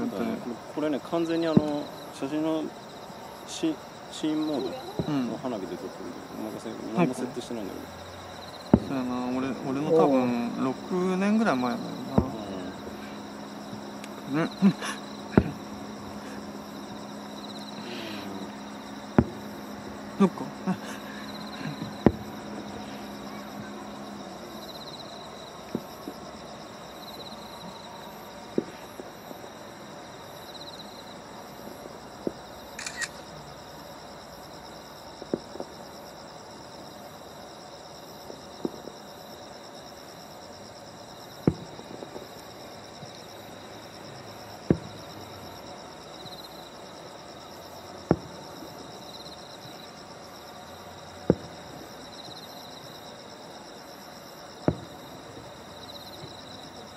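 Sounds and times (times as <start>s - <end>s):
night insects chirping: 0.0s - 56.9s
sharp thump: 19.2s - 19.4s.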